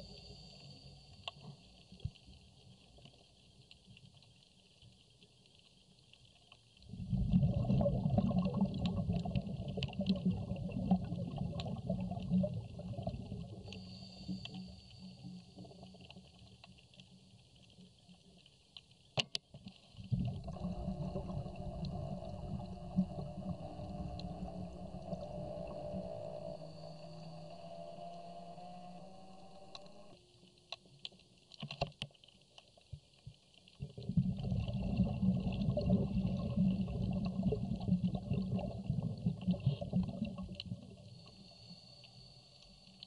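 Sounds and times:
high steady hiss: 0.0 - 3.0, 19.8 - 30.6
muffled low underwater rumble: 0.0 - 19.0, 19.6 - 31.6, 32.8 - 43.0
fine crackle of small clicks: 0.0 - 43.0.

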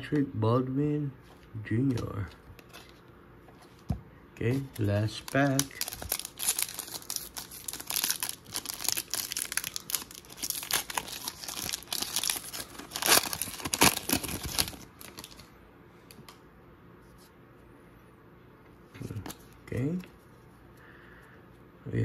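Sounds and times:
plastic wrapper tearing and crinkling: 4.6 - 15.5.

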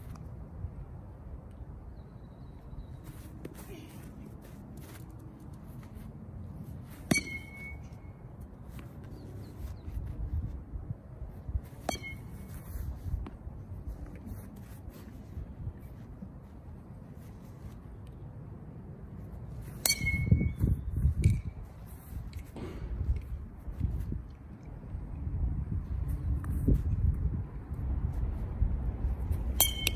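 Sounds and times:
metal bat hitting balls: 7.0 - 8.2, 11.8 - 12.5, 19.8 - 21.5, 22.5 - 23.3, 29.4 - 29.9.

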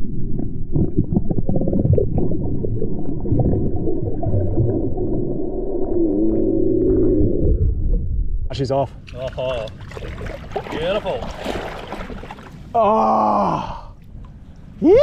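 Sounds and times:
underwater water rumble: 0.0 - 8.6
underwater clicks and crackles: 9.0 - 10.9.

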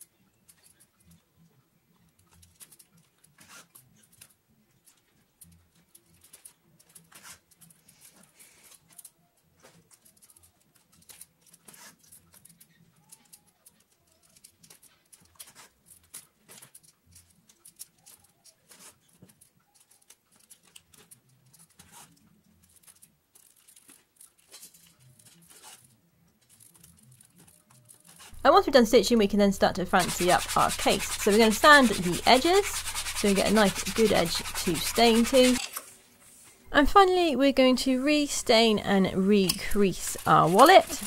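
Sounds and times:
leather stitching clicks and rasps: 2.0 - 28.4.

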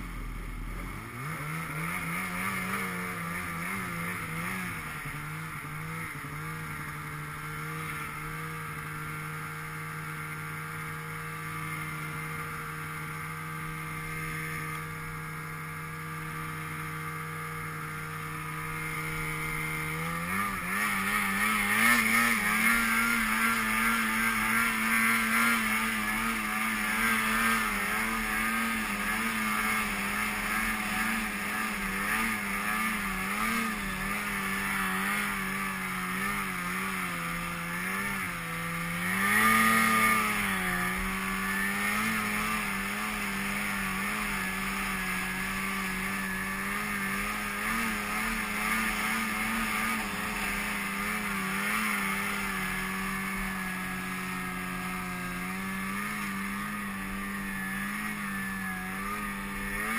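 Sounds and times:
snowmobile engine running: 0.0 - 59.9.

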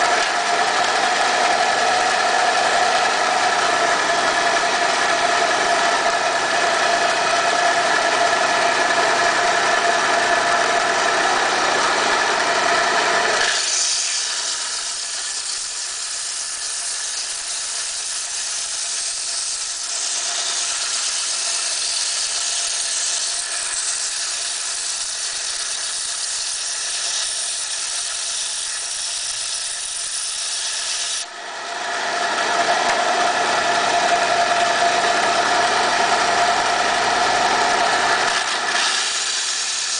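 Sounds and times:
band saw motor hum: 0.0 - 39.9
saw blade grinding rock: 11.4 - 31.3, 37.8 - 39.9.

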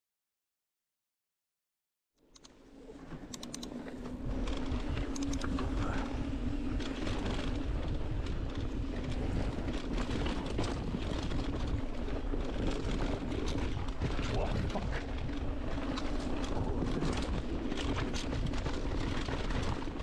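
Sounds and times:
bike rattling over bumps: 3.0 - 20.0
tyres rumbling on dirt: 4.1 - 20.0.

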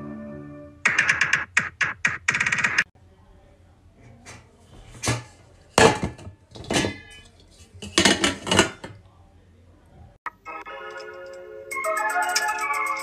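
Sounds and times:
metal pot clanking: 4.9 - 9.0.

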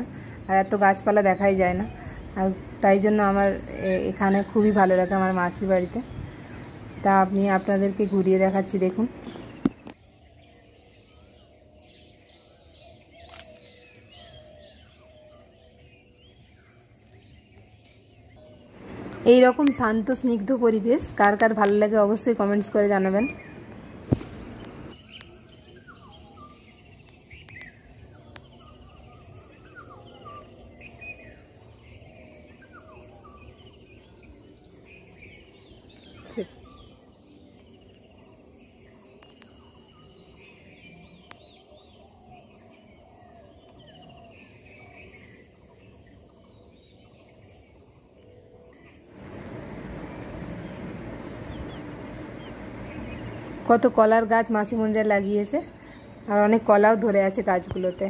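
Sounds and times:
small birds chirping: 0.0 - 58.0
faint steady hiss: 17.1 - 25.4, 48.2 - 58.0
even rushing noise: 18.8 - 19.6, 49.2 - 54.0.

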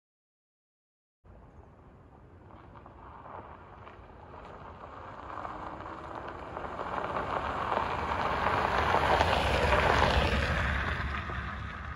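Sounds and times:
tyres crunching over gravel: 2.4 - 11.7.

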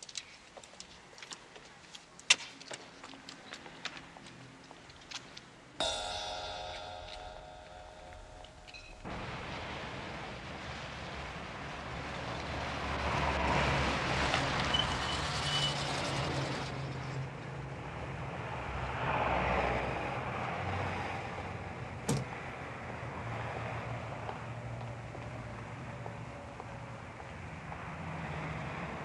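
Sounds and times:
sharp knock: 5.8 - 9.2
road noise: 9.0 - 29.0.

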